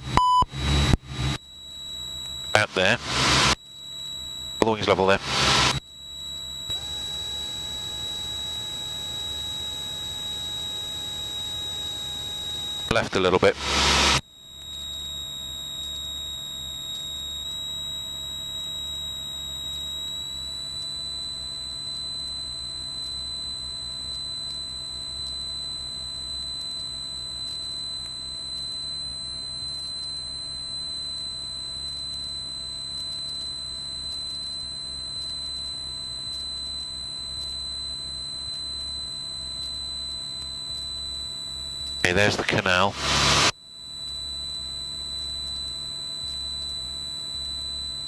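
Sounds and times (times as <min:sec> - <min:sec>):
high-pitched electrical whine: 0:00.0 - 0:33.2, 0:35.6 - 0:48.0.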